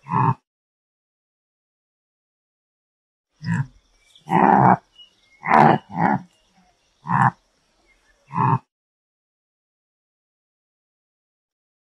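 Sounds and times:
antelope calling: 0:03.4 - 0:08.7.

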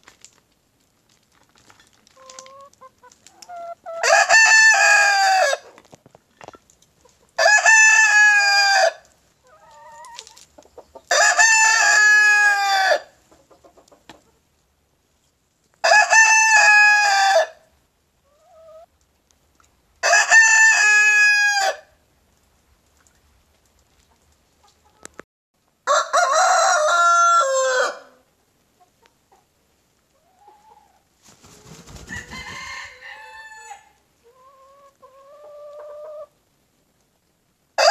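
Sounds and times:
rooster crowing: 0:25.8 - 0:28.2, 0:32.1 - 0:34.0
second rooster lower crow: 0:32.1 - 0:34.0.

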